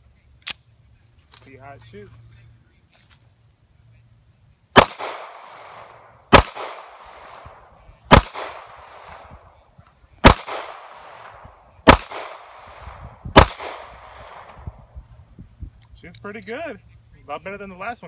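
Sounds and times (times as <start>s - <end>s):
pistol shots with echo: 4.8s - 9.5s, 10.2s - 14.8s.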